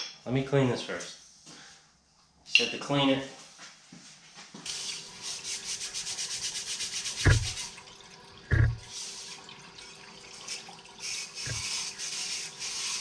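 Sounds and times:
brush scrubbing piston: 4.7s - 7.8s, 8.5s - 9.4s, 10.4s - 13.0s
solvent sloshing: 4.7s - 13.0s
heavy thumps: 7.2s - 7.6s, 8.5s - 8.9s.

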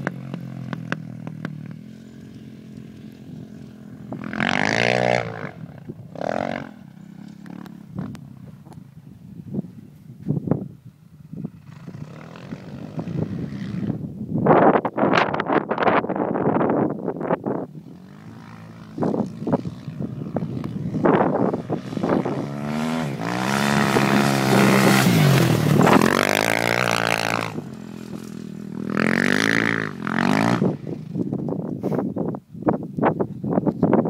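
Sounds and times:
dirt bike engine revving: 0.0s - 8.5s, 17.7s - 31.3s.

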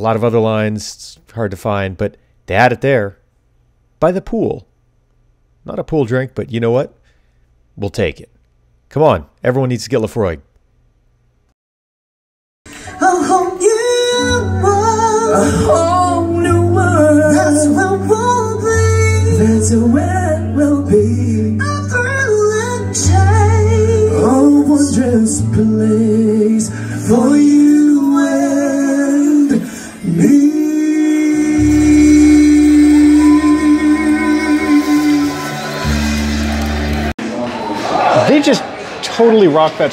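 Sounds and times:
man singing: 12.7s - 36.0s
woman singing: 12.7s - 36.1s
bass guitar: 12.7s - 37.1s
electric guitar: 31.3s - 37.1s.

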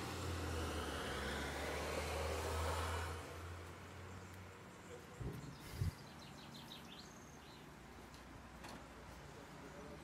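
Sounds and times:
small bird chirping: 4.0s - 7.9s.

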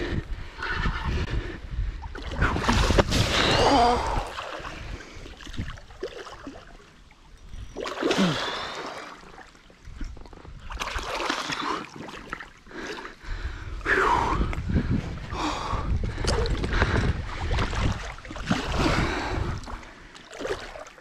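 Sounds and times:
fish thrashing and water splashing: 7.7s - 13.0s, 16.2s - 21.0s.

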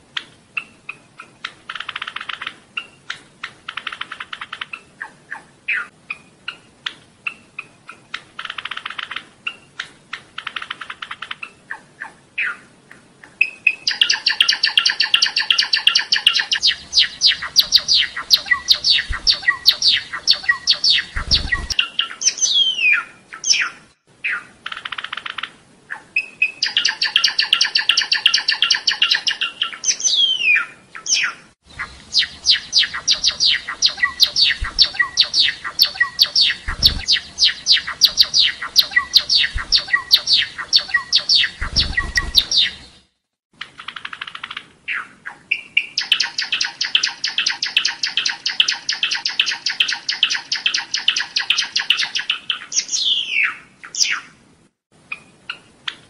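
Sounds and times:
sparrow singing: 13.4s - 43.1s, 43.9s - 54.3s.

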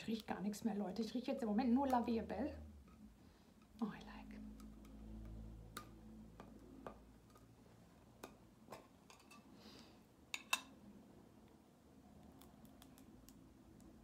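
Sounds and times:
small items clicking and tapping: 12.2s - 14.0s.

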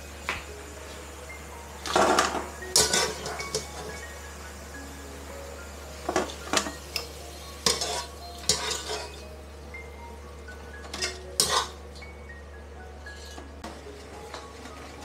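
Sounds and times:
wire skimmer scraping a wok: 1.8s - 4.2s, 6.1s - 9.4s, 10.7s - 12.1s, 13.0s - 15.0s.

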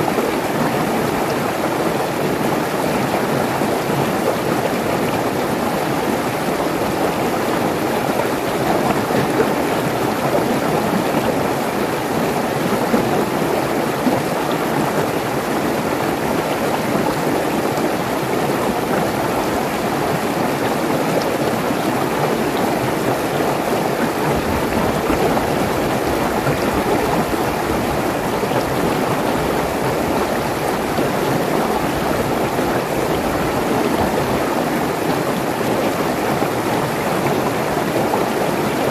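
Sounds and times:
stream rushing over rocks: 0.0s - 38.9s.

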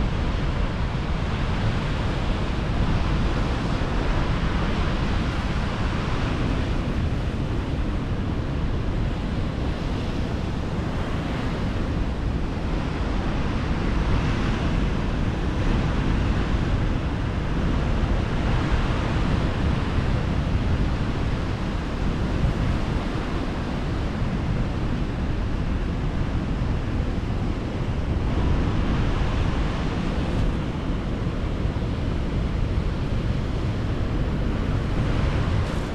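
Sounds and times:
wind rumbling on microphone: 0.0s - 35.9s.

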